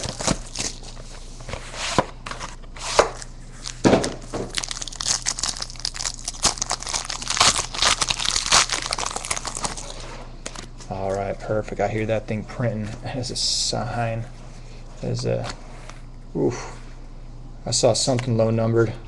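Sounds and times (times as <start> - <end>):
plastic wrapping crinkling and tearing: 0.0 - 1.1, 2.6 - 11.2.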